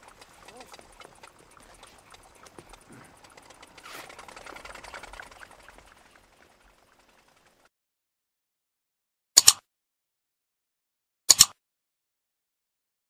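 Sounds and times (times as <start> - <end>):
moped engine ticking: 0.0 - 7.7.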